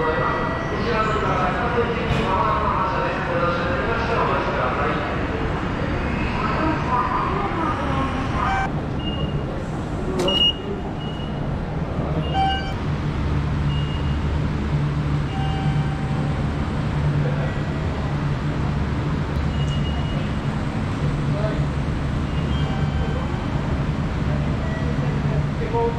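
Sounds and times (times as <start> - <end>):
ticket gate beeps: 12.2 - 12.8.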